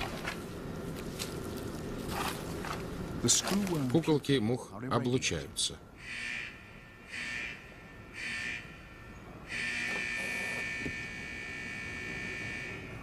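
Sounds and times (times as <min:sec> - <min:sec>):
electric buzzer buzzing: 0:06.0 - 0:12.8.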